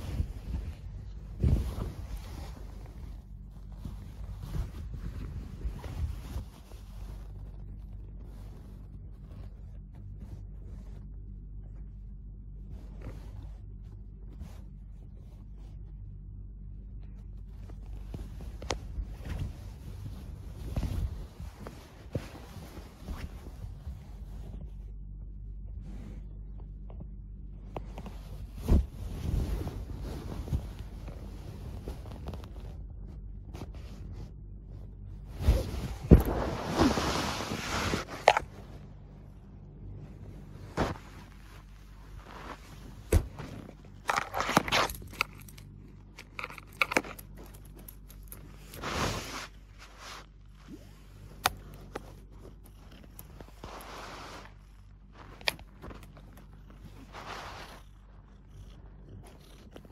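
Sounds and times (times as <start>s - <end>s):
rustling quilt: 0.0s - 16.1s, 17.1s - 25.1s, 27.6s - 45.0s, 47.2s - 58.2s
steady low hum: 0.0s - 59.9s
cat scratching at a quilt: 40.7s - 59.9s
soft thumps: 42.9s - 43.7s.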